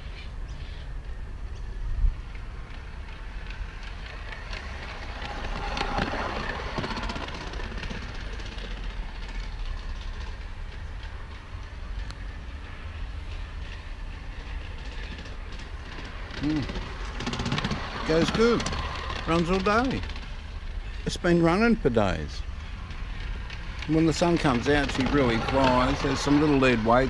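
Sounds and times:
model train wheels clicking: 2.2s - 27.0s.

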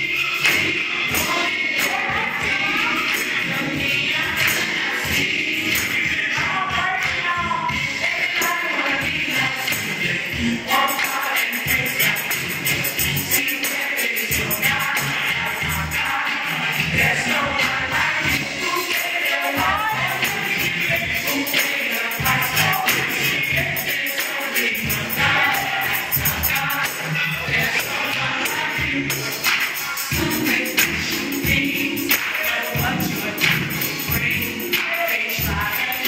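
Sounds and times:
choir singing gospel: 0.0s - 36.0s
driving beat: 0.4s - 36.0s
tambourine jingling: 8.0s - 36.0s.

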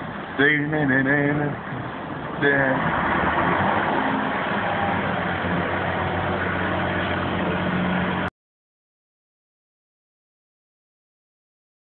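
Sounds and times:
loud vehicle noise: 0.0s - 8.3s.

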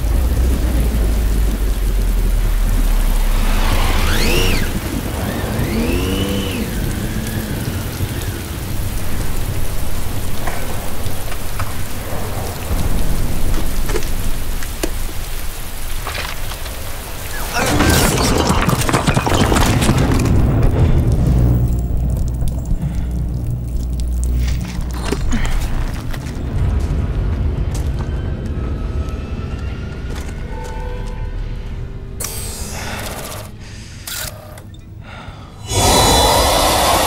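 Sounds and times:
deep rumble: 0.0s - 17.2s, 19.4s - 30.6s
heavy rain on pavement: 0.0s - 31.8s, 35.7s - 37.0s
rising and falling whines: 2.7s - 8.0s.

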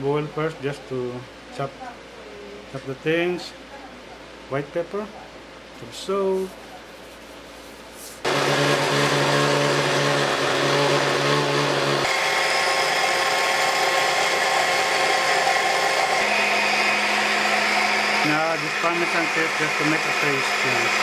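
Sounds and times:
blender running: 8.2s - 21.0s.

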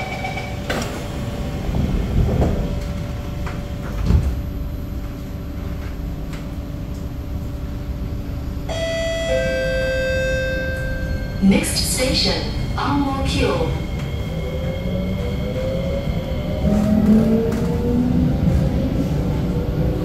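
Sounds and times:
train doors shutting with a thump: 0.0s - 4.6s
train pulling away humming: 0.0s - 20.0s
two-note descending chime: 8.7s - 11.4s
held tone: 8.7s - 12.8s.

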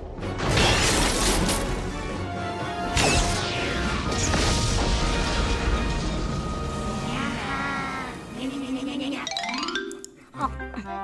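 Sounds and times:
soundtrack music: 0.0s - 11.0s
cartoon explosion and crash effects: 0.4s - 1.4s, 2.9s - 8.3s.

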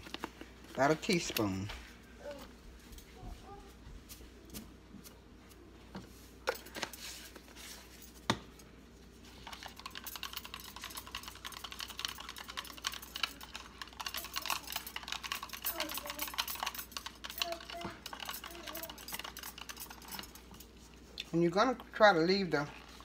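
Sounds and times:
whisk beating in plastic cup: 9.4s - 20.0s.

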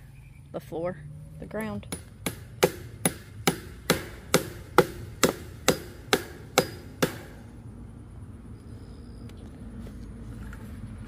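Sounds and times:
hammering on wooden post: 1.8s - 7.5s.

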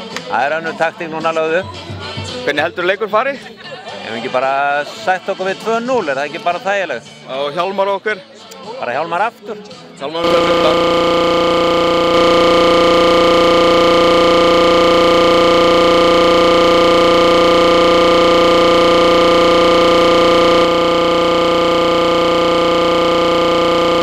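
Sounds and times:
electronic drone chord: 10.2s - 24.0s.

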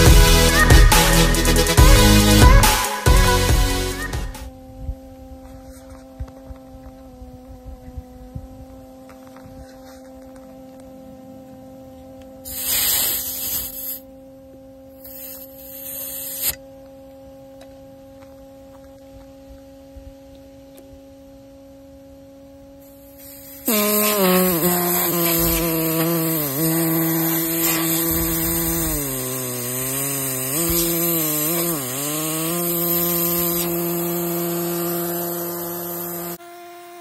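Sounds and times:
steady hum: 0.0s - 37.0s
air hissing from tyre valve: 12.4s - 14.0s, 15.0s - 16.6s, 22.9s - 36.4s.

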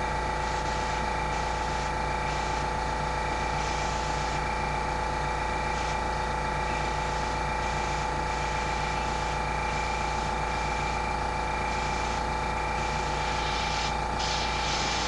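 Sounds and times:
air compressor humming: 0.0s - 15.0s
airbrush hissing: 0.4s - 2.6s, 3.4s - 4.5s, 5.7s - 6.0s, 6.6s - 11.0s, 11.6s - 15.0s.

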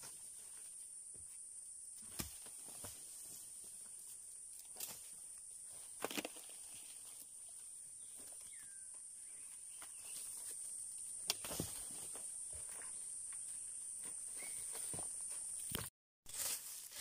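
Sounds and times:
insects droning: 0.0s - 15.8s
boots crunching on dry leaves: 16.3s - 17.0s.

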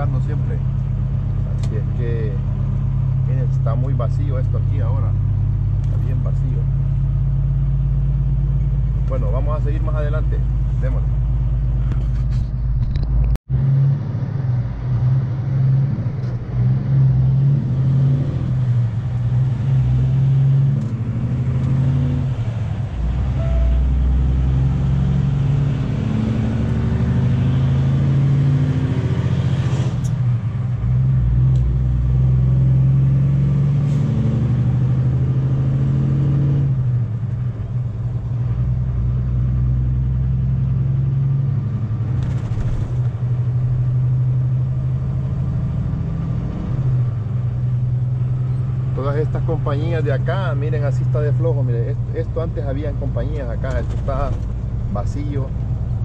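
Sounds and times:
diesel truck engine running: 14.2s - 29.4s.

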